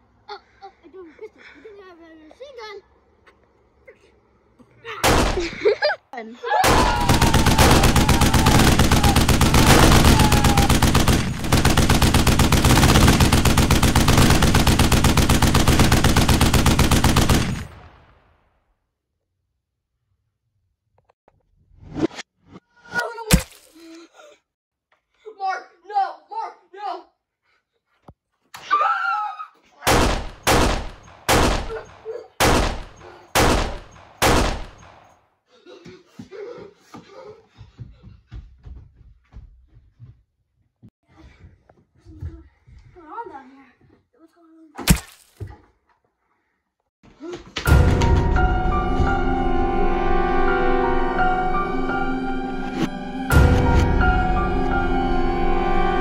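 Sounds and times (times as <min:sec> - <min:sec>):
rapid machine-gun fire: 0:05.0 - 0:05.4, 0:06.6 - 0:18.2, 0:29.9 - 0:35.1
gunshots with echo: 0:05.0 - 0:05.6, 0:06.6 - 0:18.3, 0:29.9 - 0:35.1.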